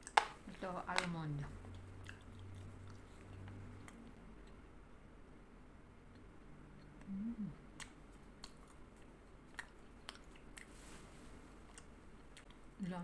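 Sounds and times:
closed-mouth chewing: 1.6s - 4.7s, 6.1s - 10.9s, 11.5s - 12.8s
person humming: 7.0s - 7.6s.

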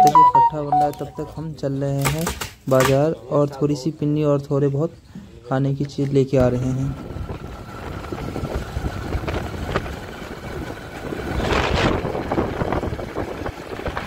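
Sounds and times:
vehicle engine running: 6.5s - 14.0s
road rumble: 6.9s - 14.0s.

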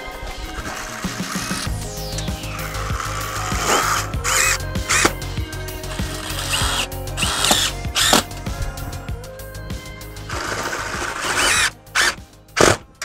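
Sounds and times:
background music: 0.0s - 13.0s
cordless drill driving screws: 0.5s - 1.7s, 5.9s - 8.4s, 10.3s - 12.8s.

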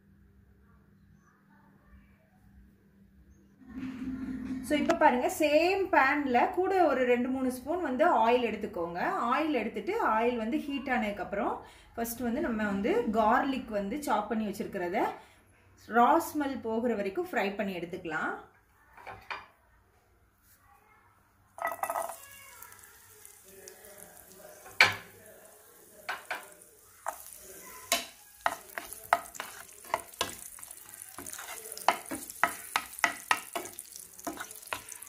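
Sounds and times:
garlic sizzling in hot oil: 21.6s - 35.0s
wooden spoon scraping a pan: 26.1s - 35.0s.

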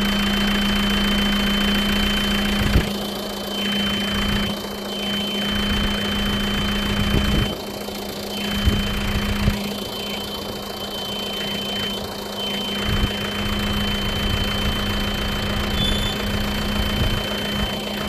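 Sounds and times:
truck engine running: 0.0s - 18.0s.

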